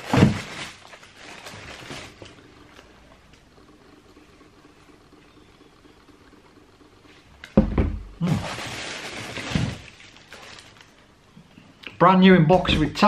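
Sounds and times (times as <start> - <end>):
paper packaging rustling: 0.0 - 2.9, 8.2 - 11.1.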